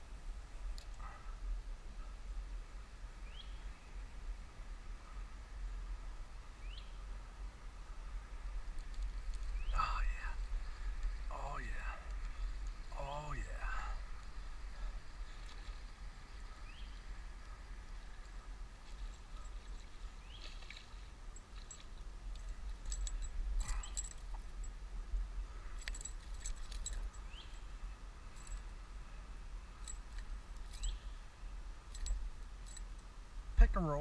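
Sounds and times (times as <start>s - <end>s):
light metallic clicks and jingling: 21.4s - 24.8s, 25.6s - 27.7s, 28.3s - 28.8s, 29.8s - 31.2s, 31.9s - 33.1s.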